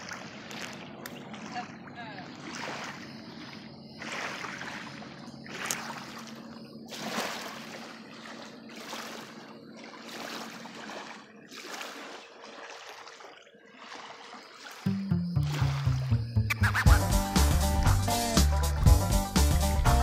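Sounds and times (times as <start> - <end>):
small waves lapping on shore: 0.0 - 16.0
faint steady hum: 0.1 - 11.3.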